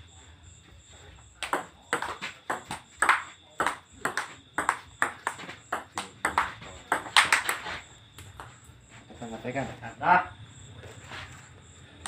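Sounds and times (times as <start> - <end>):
table tennis ball clicking: 1.4 - 7.6.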